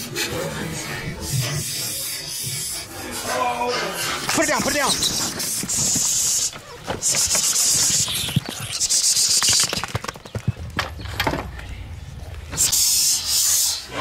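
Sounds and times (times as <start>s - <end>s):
hissing sounds: 4.8s - 9.8s, 12.5s - 14.0s.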